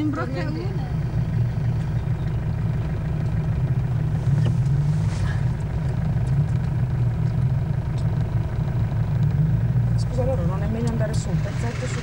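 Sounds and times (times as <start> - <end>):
vehicle engine droning at low revs: 0.0 - 12.0
faint ticks: 5.8 - 8.2.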